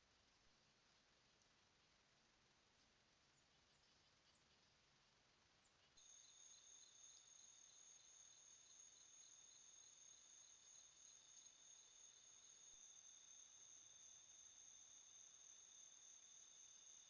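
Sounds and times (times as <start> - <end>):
pulsing insect chirp: 3.3 - 17.0
crickets trilling: 5.9 - 17.0.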